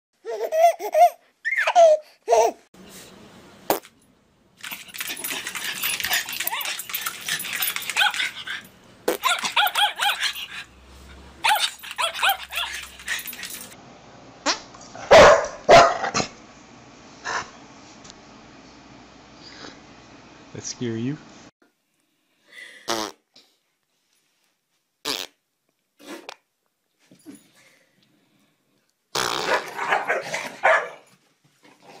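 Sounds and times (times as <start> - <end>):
dog barking: 9.2 - 10.4, 15.0 - 16.3, 29.5 - 31.1.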